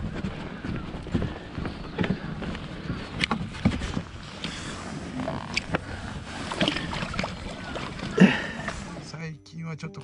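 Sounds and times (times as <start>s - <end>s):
wind noise: 0.0s - 8.0s
clicks and knocks handling fish: 1.8s - 8.7s.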